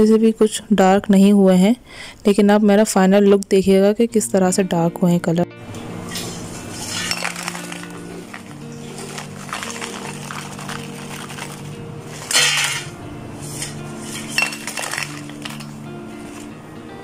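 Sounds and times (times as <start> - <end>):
soft background music: 2.3 - 17.0
fried shells rattling on ceramic plate: 6.6 - 16.5.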